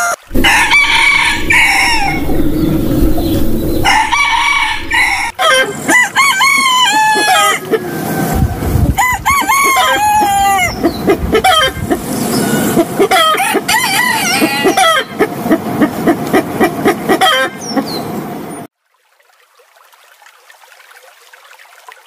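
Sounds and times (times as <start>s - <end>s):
roosters crowing: 0.3s - 5.5s.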